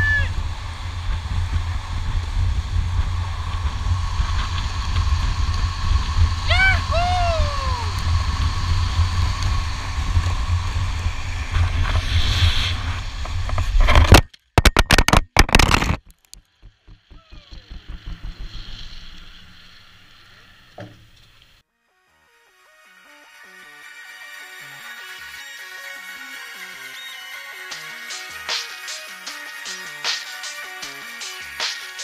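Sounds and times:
wind and wheel roar: 0.0s - 14.3s, 15.7s - 20.2s
quick scrapes: 10.9s - 14.2s.

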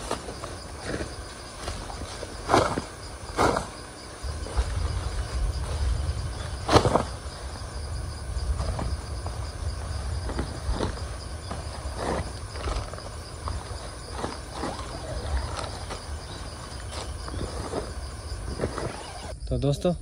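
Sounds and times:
insects chirping: 0.0s - 20.0s
low rumble: 4.0s - 18.8s.

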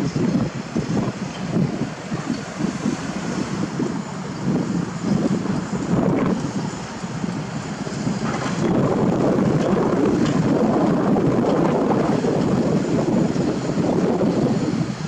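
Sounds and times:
excavator diesel engine under load: 0.0s - 15.0s
wind buffeting microphone: 0.0s - 15.0s.

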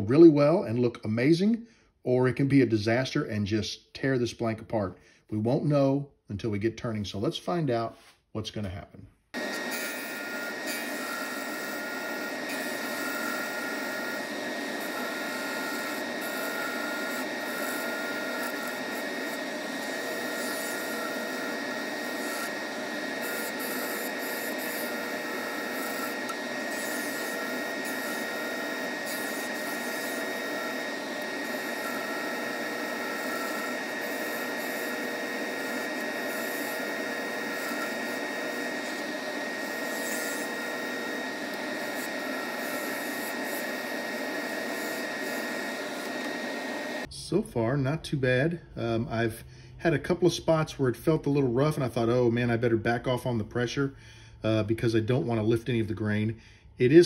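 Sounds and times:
chisel scraping hiss on wood: 9.4s - 46.9s
lathe high whine: 9.4s - 47.1s.

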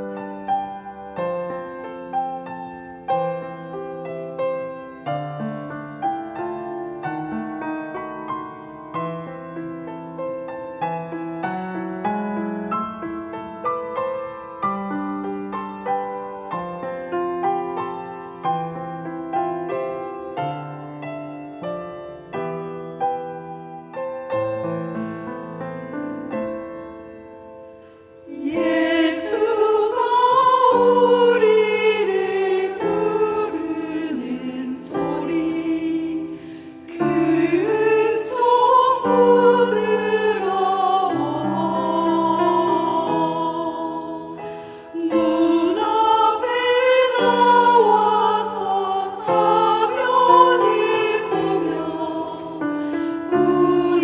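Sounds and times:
slow gentle piano melody: 0.0s - 54.0s
women's vocal ensemble singing: 28.2s - 54.0s.

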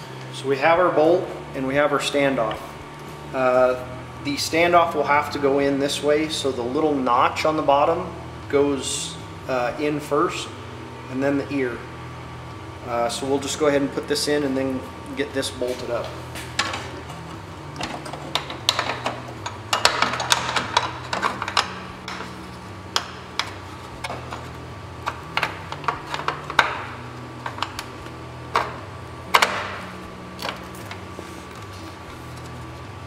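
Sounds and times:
metallic clicks and clatter: 16.5s - 22.4s, 23.0s - 27.9s.

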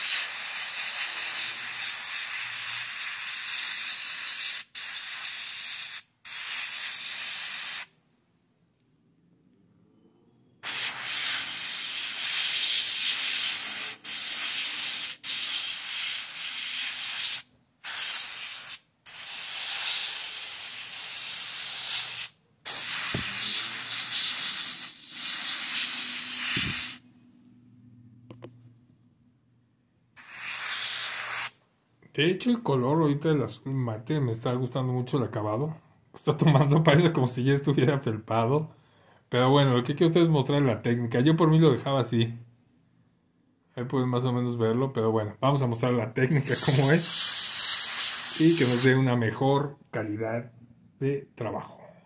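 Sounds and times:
airbrush spraying hiss: 0.0s - 8.0s, 10.6s - 27.0s, 30.2s - 31.6s, 46.3s - 48.9s.

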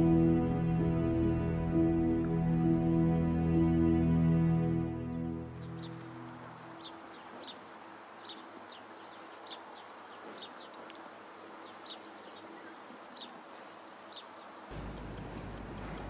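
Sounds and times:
soft music: 0.0s - 8.7s.

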